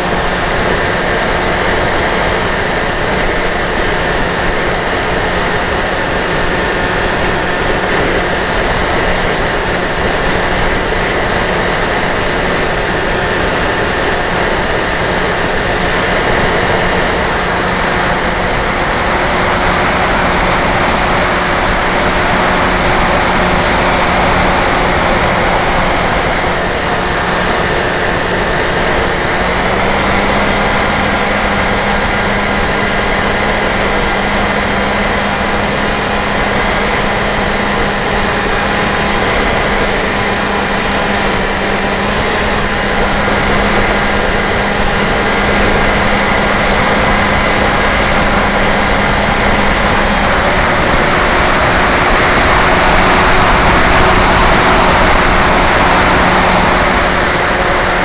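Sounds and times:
electric motor and propeller humming: 0.0s - 58.0s.

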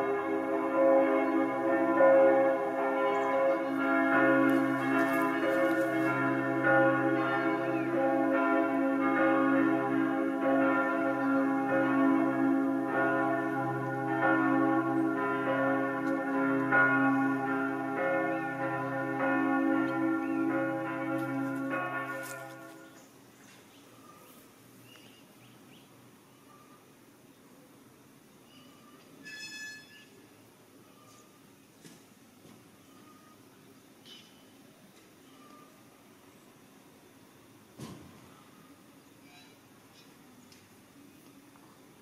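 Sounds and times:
church bells pealing: 0.0s - 23.0s.

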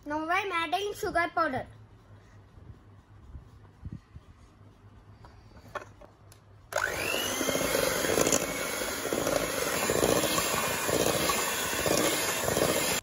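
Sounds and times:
hand mixer motor whining: 6.7s - 13.0s.

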